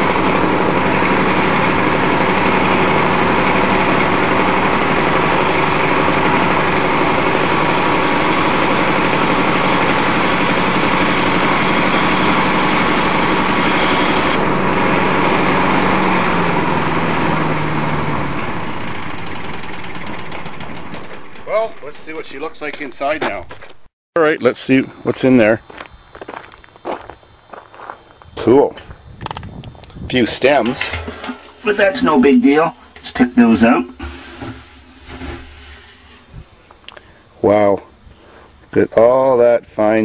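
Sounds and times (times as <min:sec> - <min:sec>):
lawnmower engine running: 0:00.0 - 0:22.0, 0:30.4 - 0:36.8.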